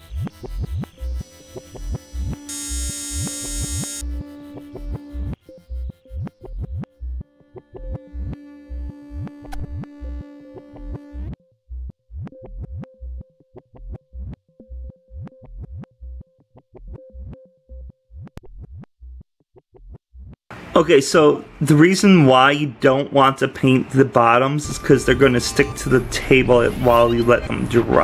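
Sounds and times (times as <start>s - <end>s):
electronic music with synthesizer: 0.0s - 18.8s, 24.6s - 28.0s.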